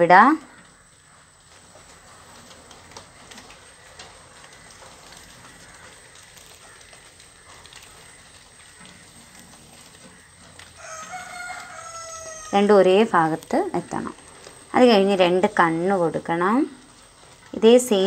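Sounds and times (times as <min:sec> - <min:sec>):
faint background noise: 0:00.0 - 0:18.0.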